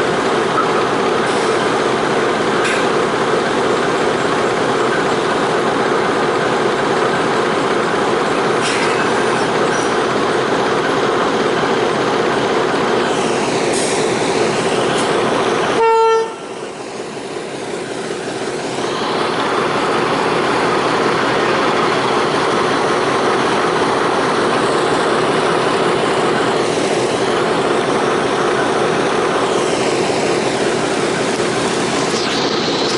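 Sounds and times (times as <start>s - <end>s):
diesel locomotive engine drone: 0.0s - 32.9s
train horn toot: 15.8s - 16.5s.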